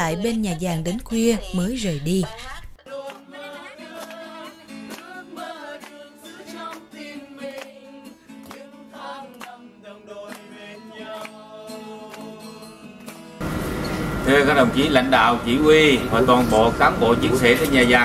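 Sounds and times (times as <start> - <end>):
song with singing over a beat: 2.3 - 13.3.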